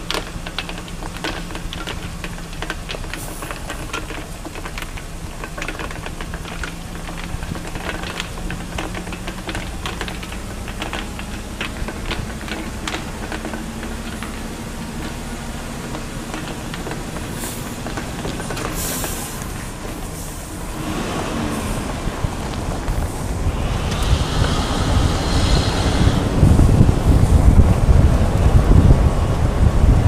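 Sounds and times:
sharp rattles and knocks: 0:00.0 - 0:29.2
rushing road and wind noise: 0:00.0 - 0:30.0
low engine drone: 0:08.1 - 0:30.0.

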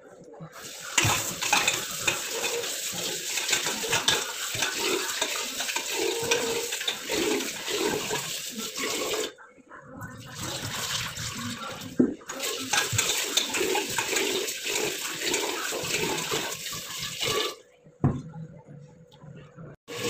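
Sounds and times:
tap water splashing into pot: 0:00.7 - 0:08.3, 0:10.8 - 0:17.5.

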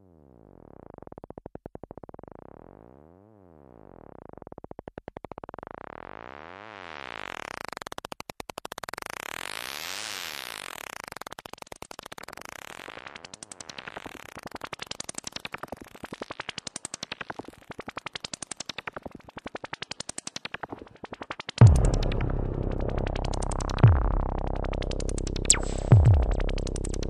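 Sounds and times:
buzzy pulsing synthesizer tone: 0:17.7 - 0:27.0.

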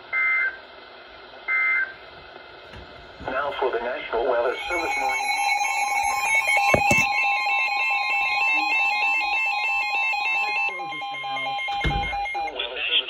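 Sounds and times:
steady alert tone: 0:04.5 - 0:12.5
fast high-pitched alarm beeping: 0:04.5 - 0:12.6.

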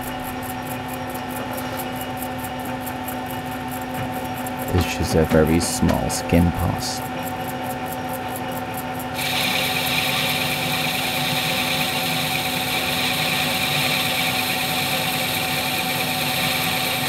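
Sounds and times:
metal lathe humming: 0:09.1 - 0:17.0
hissing lathe cutting metal: 0:09.2 - 0:17.0.

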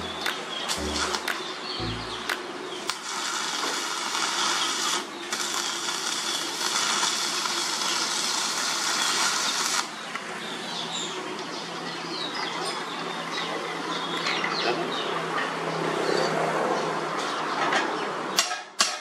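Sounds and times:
arc welding crackling hiss: 0:00.0 - 0:01.3, 0:02.9 - 0:10.0.

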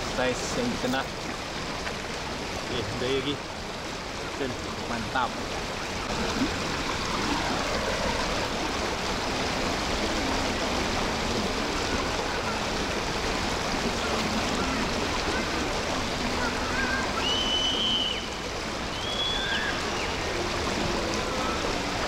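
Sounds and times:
fast-flowing river water: 0:00.0 - 0:22.0.

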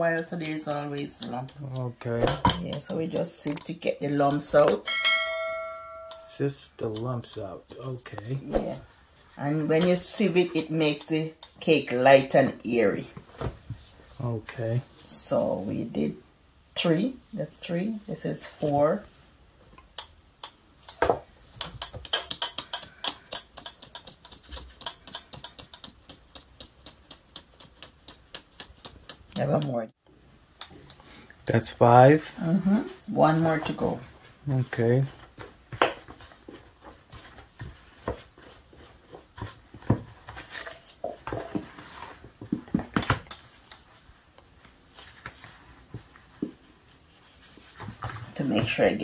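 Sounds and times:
kitchenware knocks and scrapes: 0:02.2 - 0:03.3.

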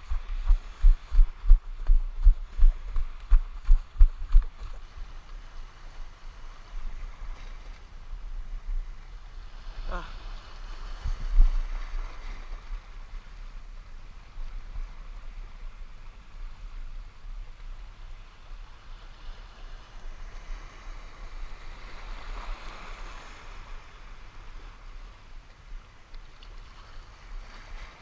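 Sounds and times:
wind buffeting microphone: 0:00.0 - 0:09.8, 0:10.5 - 0:17.6.

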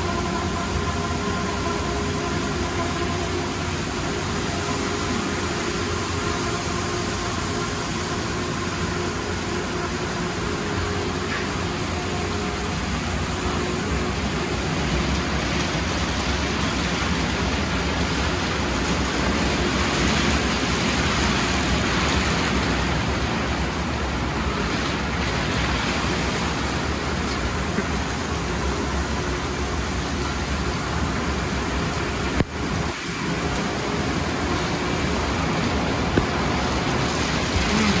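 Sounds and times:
water spray rushing over car: 0:00.0 - 0:38.0.

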